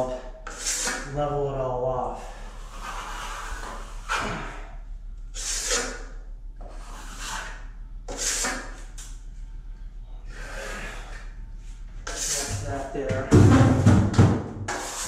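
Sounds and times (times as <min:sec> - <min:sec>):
trowel scraping joint compound: 0:00.4 - 0:01.2, 0:02.3 - 0:04.6, 0:05.4 - 0:08.9, 0:12.0 - 0:12.9, 0:14.7 - 0:15.0.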